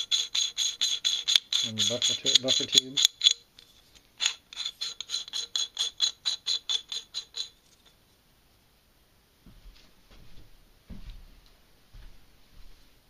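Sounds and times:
nut spinning onto threads clicking: 0.0 - 7.6.

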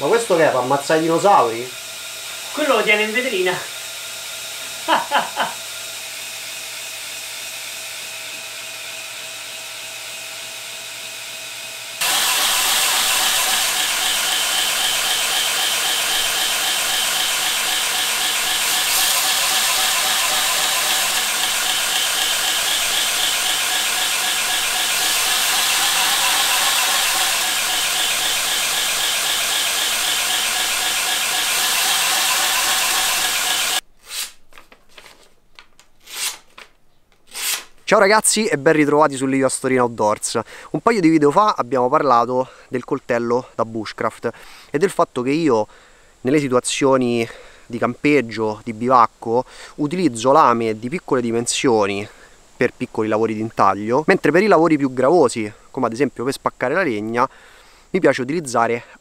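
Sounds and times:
belt grinder running: 0.1 - 33.8
steel squealing on grinding belt: 12.0 - 33.8
blade slicing through paper: 12.0 - 35.3, 36.0 - 36.7, 37.3 - 37.8.

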